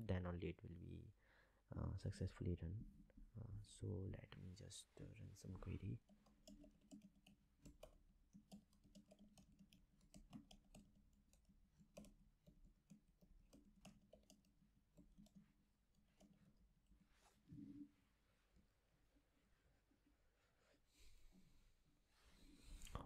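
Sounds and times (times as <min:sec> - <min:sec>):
computer keys and mouse clicking: 0:06.0 - 0:16.4.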